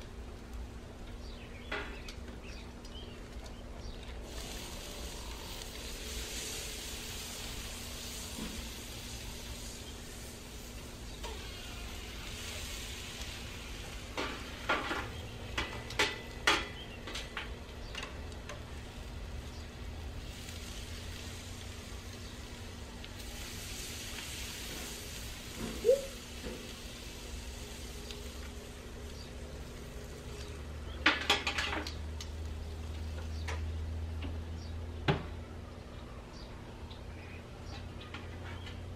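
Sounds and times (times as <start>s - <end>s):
food sizzling on a grill: 4.1s - 34.0s.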